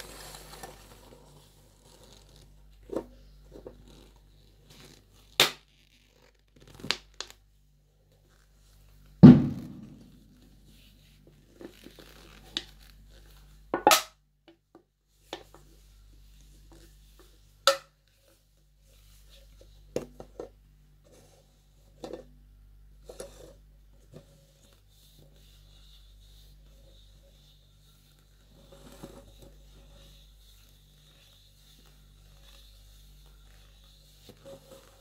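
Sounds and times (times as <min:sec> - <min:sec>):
ringing can thunk: 0:09.2 - 0:10.0.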